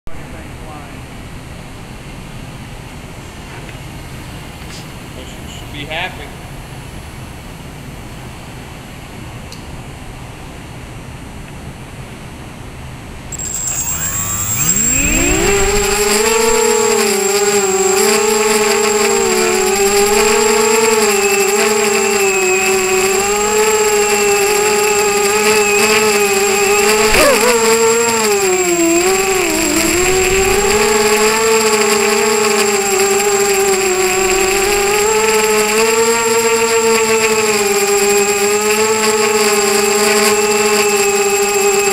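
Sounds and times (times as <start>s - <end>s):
quadcopter motors whining: 13.2s - 41.9s.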